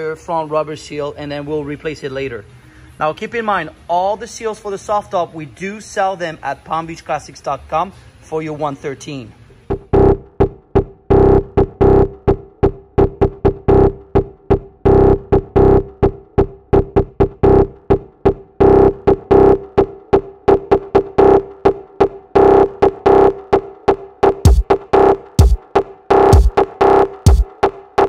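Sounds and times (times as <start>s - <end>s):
synthesizer beat: 9.6s - 28.0s.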